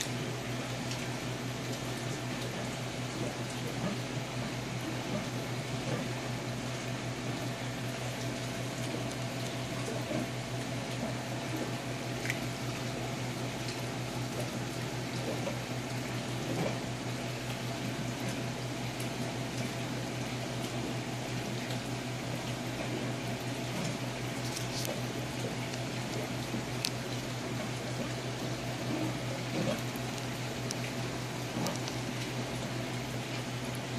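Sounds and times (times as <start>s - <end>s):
low pump hum: 0.0s - 33.9s
water bubbling and splashing: 0.0s - 33.9s.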